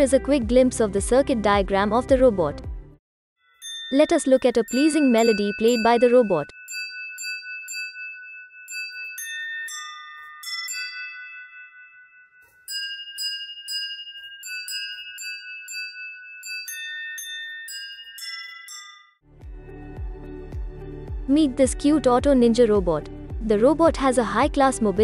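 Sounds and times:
wine glasses struck in a melody: 3.5s - 19.2s.

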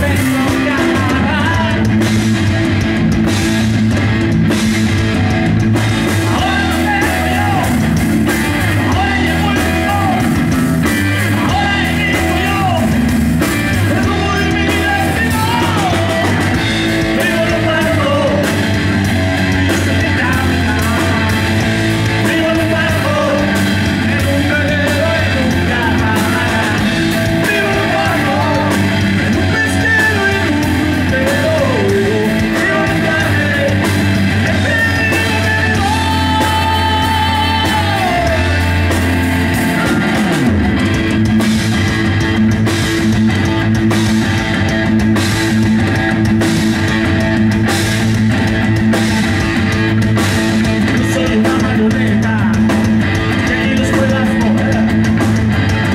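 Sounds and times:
man singing: 0.0s - 2.1s, 6.0s - 40.2s, 50.6s - 55.4s
drum kit: 0.0s - 55.9s
electric bass: 0.0s - 55.9s
electric guitar: 0.0s - 55.9s.

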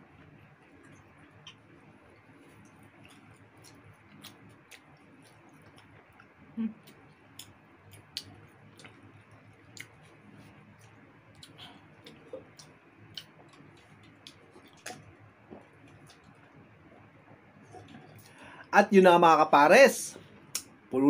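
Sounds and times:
chewing: 0.6s - 18.4s
wet mouth clicks and smacks: 0.8s - 1.7s, 2.5s - 10.2s, 10.8s - 16.5s.

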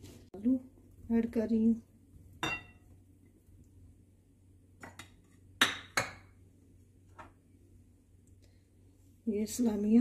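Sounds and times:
plate clinking against glass bowl: 2.4s - 2.8s.

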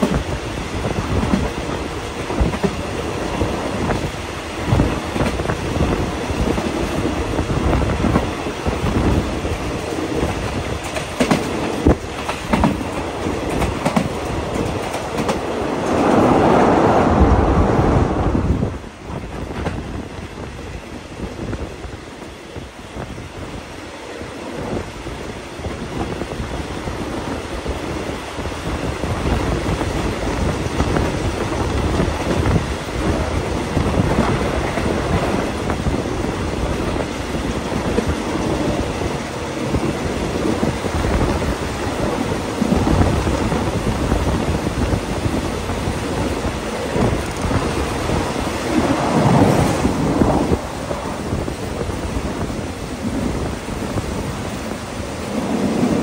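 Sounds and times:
train wheels rumbling on rail: 0.0s - 56.0s
wind rushing past window: 0.0s - 56.0s.

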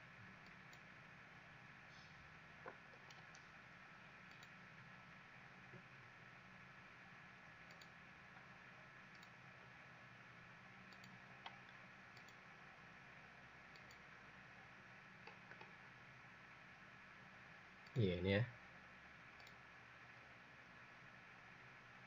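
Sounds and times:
low background hiss: 0.0s - 22.0s
computer mouse clicks: 0.4s - 0.9s, 2.6s - 3.4s, 4.2s - 4.6s, 7.7s - 8.0s, 9.1s - 9.4s, 10.9s - 12.5s, 13.7s - 14.1s, 15.2s - 15.8s, 19.4s - 19.6s.

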